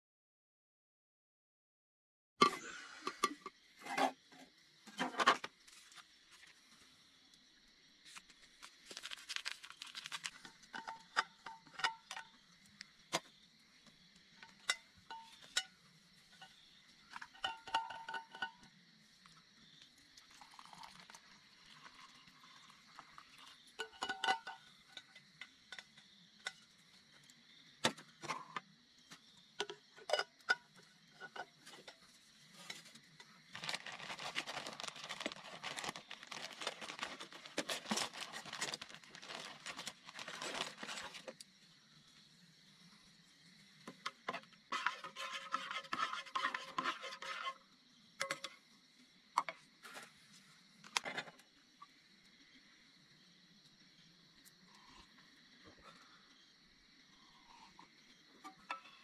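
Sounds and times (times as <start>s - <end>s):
small hard objects clinking: 8.6s - 12.4s, 20.3s - 25.2s, 33.5s - 41.4s.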